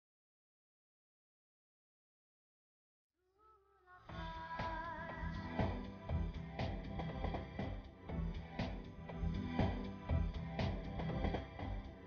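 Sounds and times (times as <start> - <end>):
steady drum beat: 4.1 - 12.0.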